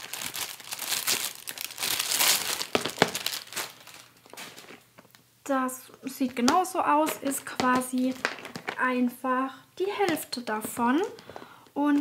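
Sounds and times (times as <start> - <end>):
packaging crinkling and rustling: 0.0 - 5.2, 6.2 - 8.8.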